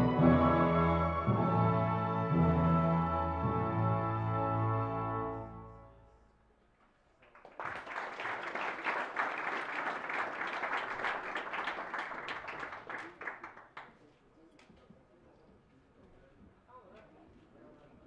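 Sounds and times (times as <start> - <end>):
audience applauding: 7.2 - 13.9.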